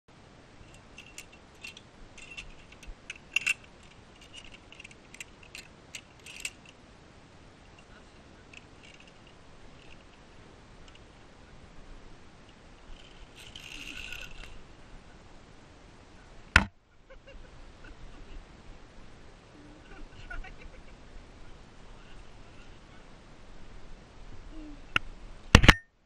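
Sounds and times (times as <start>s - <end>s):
metal carabiners clicking: 0.6s - 6.8s, 8.5s - 10.2s, 12.8s - 14.6s.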